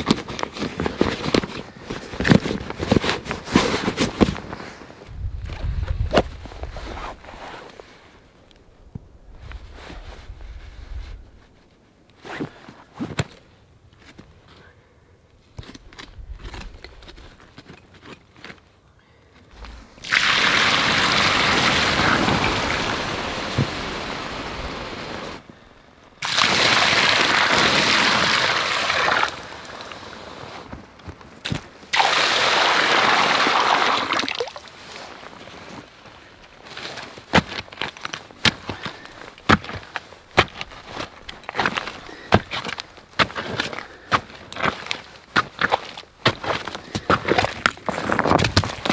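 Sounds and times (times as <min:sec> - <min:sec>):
water hissing on campfire embers: 0:19.8 - 0:25.4, 0:26.2 - 0:30.6.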